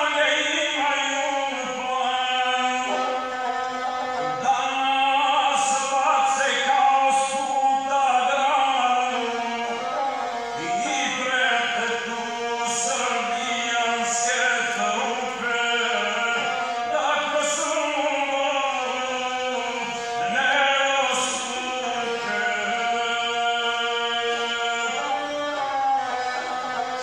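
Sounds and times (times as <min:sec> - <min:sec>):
bowed single-string fiddle: 0:00.0 - 0:27.0
man chanting epic song: 0:04.2 - 0:09.8, 0:10.6 - 0:25.3.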